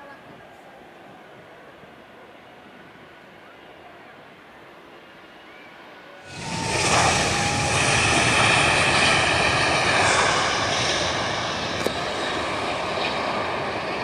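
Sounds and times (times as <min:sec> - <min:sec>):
jet engines roaring on runway: 0:06.2 - 0:14.0.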